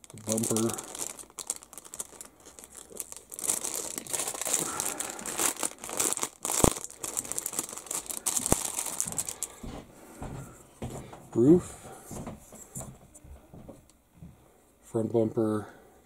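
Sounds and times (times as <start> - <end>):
plastic bag crinkling: 0.0 - 9.7.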